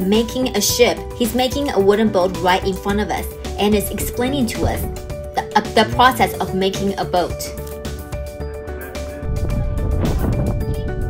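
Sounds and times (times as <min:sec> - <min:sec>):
music with steady beat: 0:01.1 - 0:11.0
wind buffeting microphone: 0:09.2 - 0:11.0.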